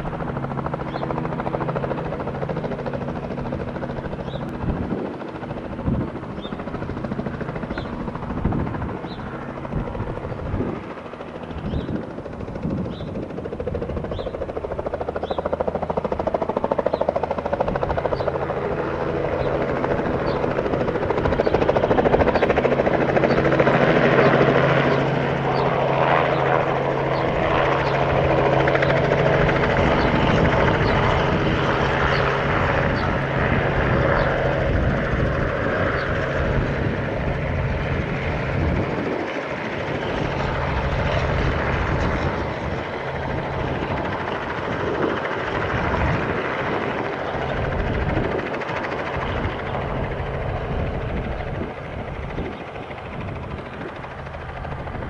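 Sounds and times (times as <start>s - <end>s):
helicopter flying low past: 0.0s - 55.0s.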